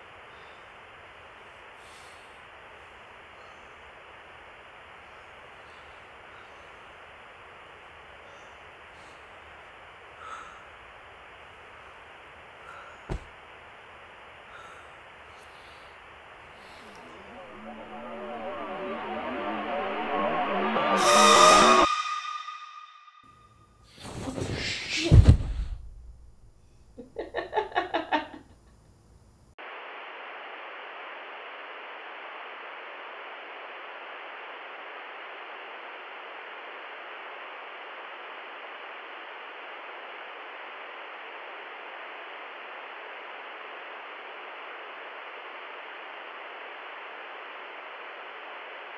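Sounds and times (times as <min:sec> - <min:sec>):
television static hiss: 0:00.0 - 0:20.6, 0:29.3 - 0:48.9
pulsing stuttering sound: 0:16.8 - 0:23.3.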